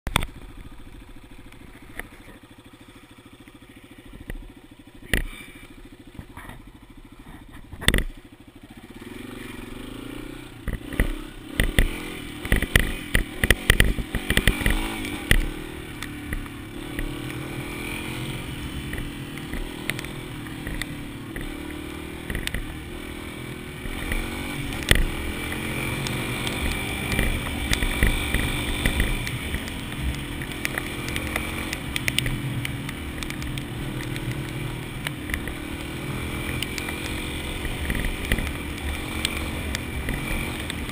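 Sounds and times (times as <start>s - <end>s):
motorcycle engine idling and riding: 0.0s - 40.9s
sharp knocks and clattering: 7.3s - 8.2s.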